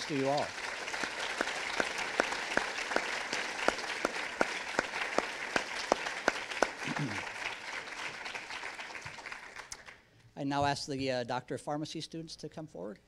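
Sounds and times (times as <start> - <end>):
audience applauding: 0.0 - 10.0
person clapping loudly nearby: 0.0 - 10.0.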